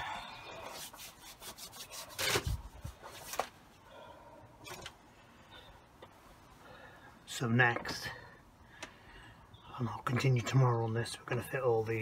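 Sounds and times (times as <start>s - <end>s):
rubbing and scraping handling noises: 0.0s - 3.8s.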